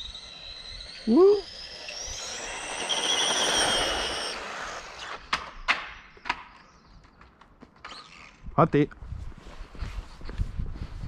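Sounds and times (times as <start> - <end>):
electric motor high whine: 0.0 - 5.3, 7.8 - 8.4.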